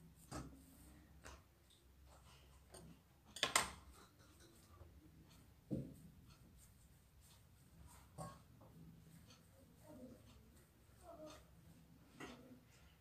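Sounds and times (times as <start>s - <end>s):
hands rolling pastry dough: 0.0s - 13.0s.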